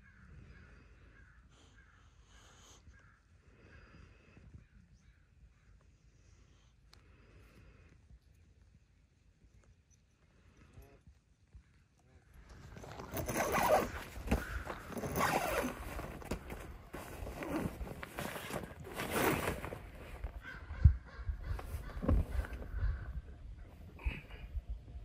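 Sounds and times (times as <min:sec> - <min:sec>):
tent zipper unzipping: 0:12.6 - 0:20.3.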